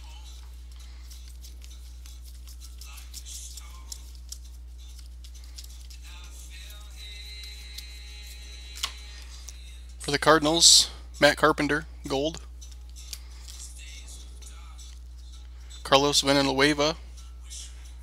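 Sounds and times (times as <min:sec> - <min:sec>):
faint music with held tones: 0:00.0 - 0:18.0
cards clicking and rustling: 0:00.2 - 0:09.6, 0:12.6 - 0:13.7.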